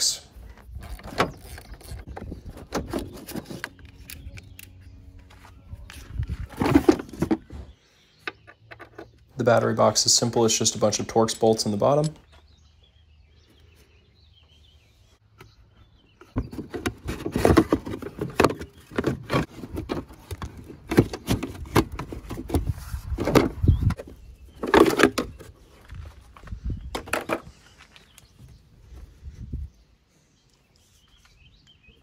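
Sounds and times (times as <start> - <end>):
plastic box clattering: 6.4 - 7.5, 16.4 - 24.0.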